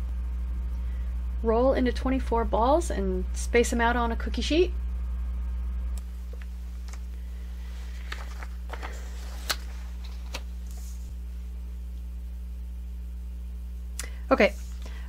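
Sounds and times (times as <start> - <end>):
steady hum: 0.0 - 15.0
paper rustling: 7.6 - 11.1.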